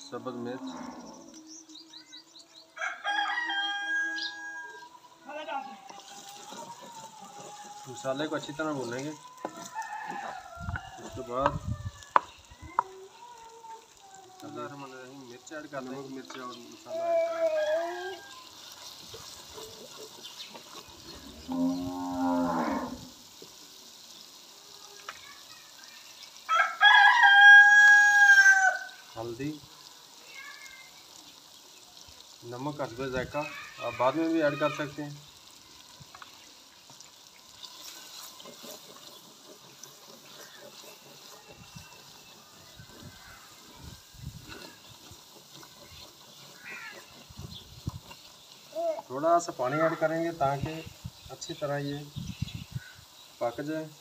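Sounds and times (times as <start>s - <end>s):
food sizzling in a pot: 0.0s - 54.0s
rooster crowing: 2.8s - 8.0s, 8.8s - 12.3s, 26.5s - 29.0s
cow mooing: 21.2s - 23.1s
ladle stirring thick paste: 35.8s - 48.7s.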